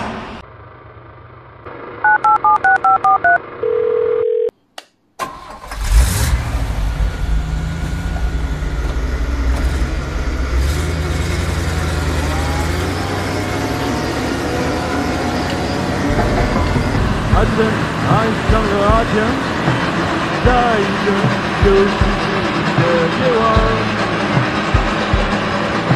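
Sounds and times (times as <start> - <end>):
truck engine starting and running: 0.0 - 4.0, 4.8 - 25.9
dial tone: 2.0 - 4.5
telephone keypad tones: 2.1 - 4.5.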